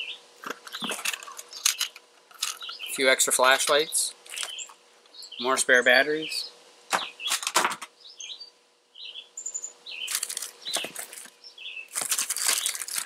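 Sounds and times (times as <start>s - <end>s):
small birds chirping: 0.0s - 13.0s
plastic packages rustling: 10.0s - 13.0s.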